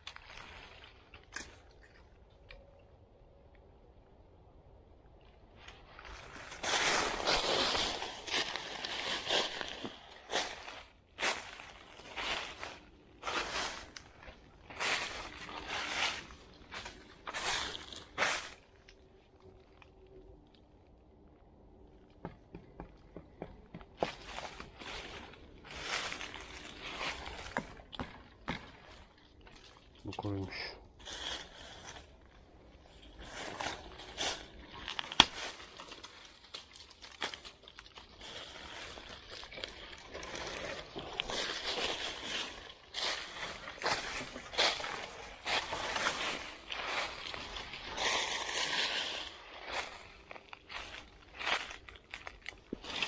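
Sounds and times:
footsteps crunching dry leaves: 0:05.8 - 0:18.7, 0:24.0 - 0:29.0, 0:31.0 - 0:32.3, 0:33.0 - 0:53.0.

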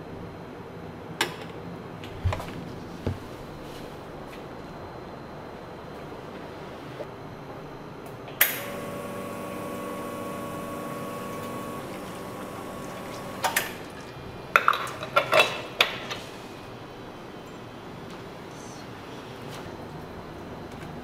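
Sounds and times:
espresso machine pump humming: 0:08.6 - 0:14.1.

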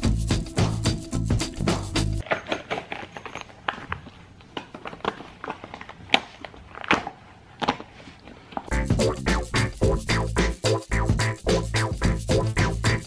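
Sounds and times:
rubbery rustles and crackles: 0:02.3 - 0:08.7.

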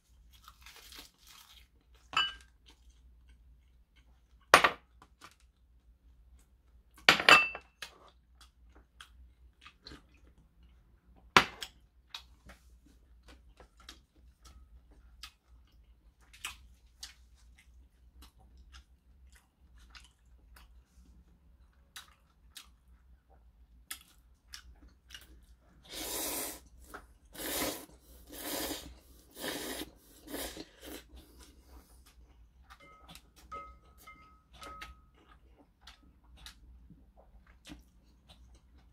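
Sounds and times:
chewing: 0:07.9 - 0:11.0, 0:13.1 - 0:25.8, 0:34.3 - 0:38.9
noodle slurping: 0:25.9 - 0:31.2.

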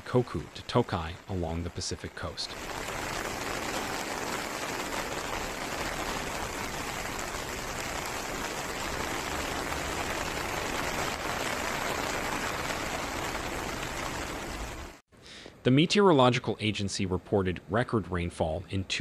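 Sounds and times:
heavy rain: 0:00.0 - 0:15.0
river rushing in flood: 0:01.5 - 0:15.0.

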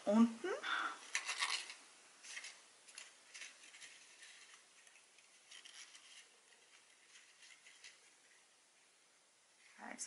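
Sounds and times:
ribbon rustling through cardstock: 0:01.0 - 0:09.0.

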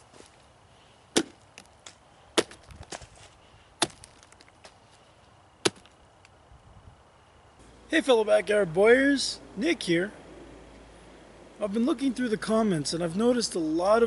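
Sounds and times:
tomahawk chopping into pumpkin: 0:03.8 - 0:04.1.

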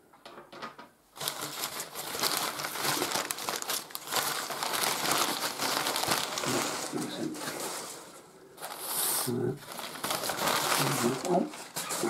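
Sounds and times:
paper crumpling: 0:01.2 - 0:12.0.

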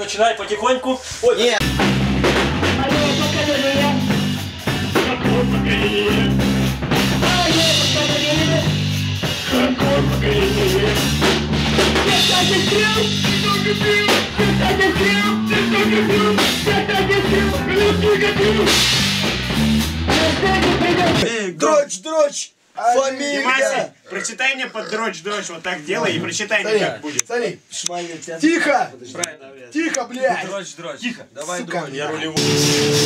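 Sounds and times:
guitar: 0:01.6 - 0:21.2, 0:32.4 - 0:33.0
drum kit beat: 0:01.6 - 0:21.3, 0:32.4 - 0:33.0
person singing: 0:04.8 - 0:06.5, 0:07.2 - 0:08.8, 0:09.4 - 0:11.2, 0:12.1 - 0:18.8.

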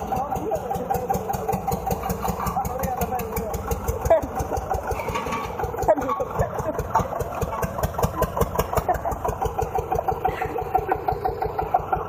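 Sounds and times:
diesel tractor engine knocking: 0:00.0 - 0:12.0.

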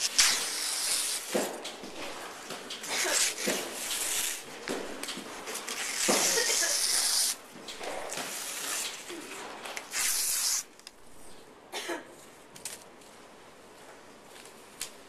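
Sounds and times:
people shushing: 0:02.8 - 0:04.4, 0:05.8 - 0:07.4.

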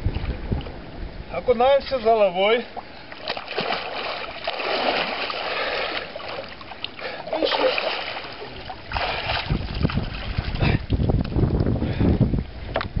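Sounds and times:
water splashing: 0:02.6 - 0:11.2.

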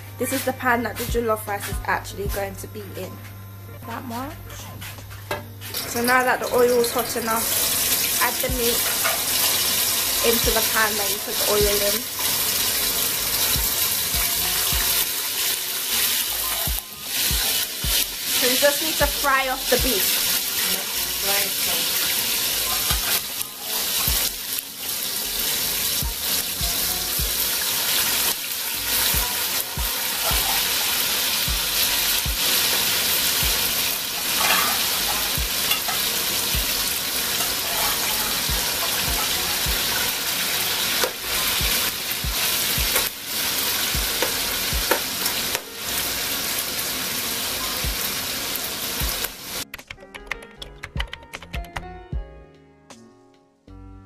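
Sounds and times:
meat sizzling in hot oil: 0:05.6 - 0:49.7
spoon scraping against pan: 0:08.8 - 0:09.8, 0:34.2 - 0:36.2.

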